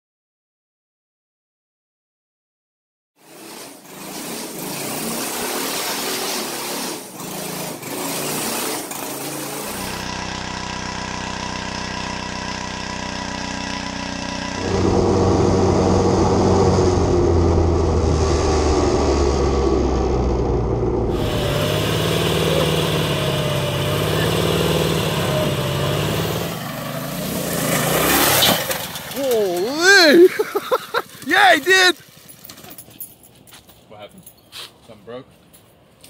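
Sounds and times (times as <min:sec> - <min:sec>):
go-kart engine: 0:03.2 - 0:33.0
minibike engine running: 0:09.6 - 0:18.0, 0:21.1 - 0:32.7.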